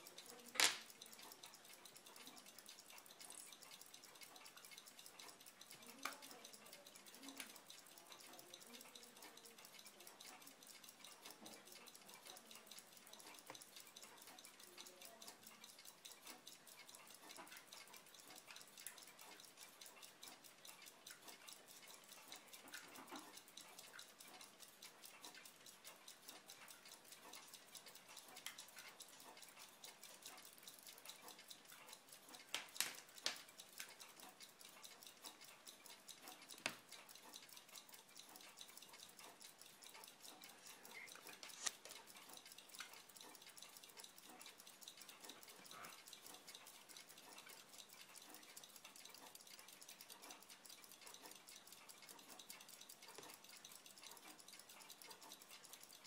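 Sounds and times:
faint rapid clicking: 0.0 - 56.0
sharper clicks: 0.6 - 0.9.

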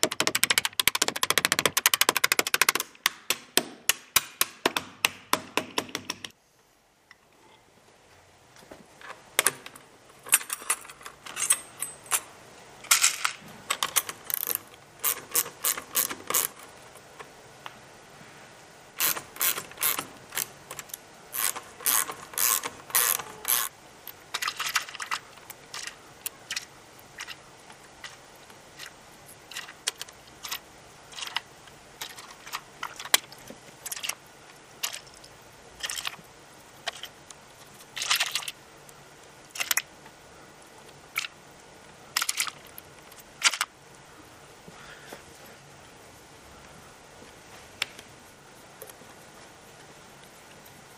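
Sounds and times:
ratchet wrench clicking: 14.0 - 16.6, 19.0 - 23.7.

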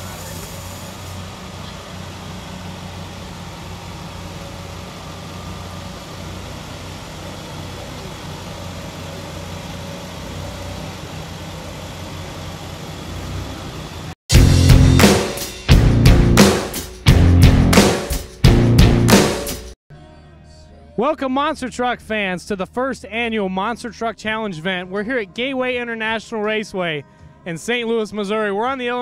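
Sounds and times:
truck engine idling: 0.0 - 15.1
loud rock music: 14.3 - 19.8.

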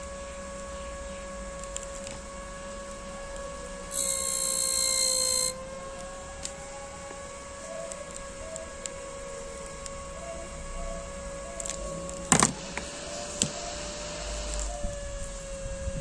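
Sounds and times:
fan blades buzzing rattle: 0.0 - 10.0
cooling fan whine: 0.0 - 16.0.

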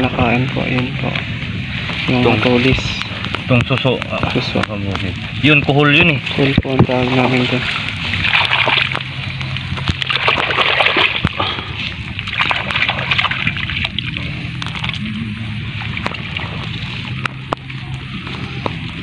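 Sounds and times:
hands splashing in shallow water: 7.0 - 15.1.

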